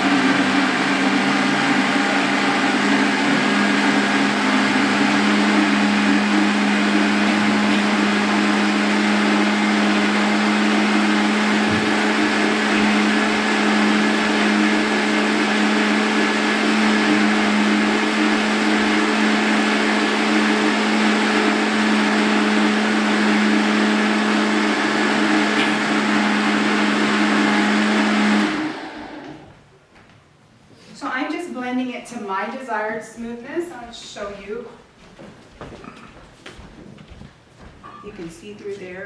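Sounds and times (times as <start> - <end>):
blender running: 0.0 - 29.5.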